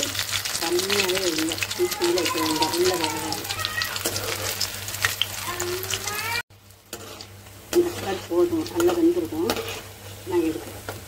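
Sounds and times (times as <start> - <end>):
food sizzling in hot oil: 0.0 - 11.0.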